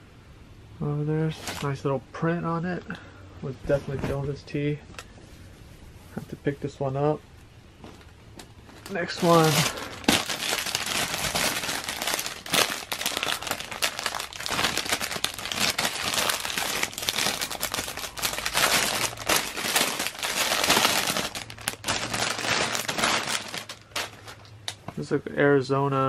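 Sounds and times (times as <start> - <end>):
plastic bag crinkling: 1.3 - 1.8, 7.8 - 24.8.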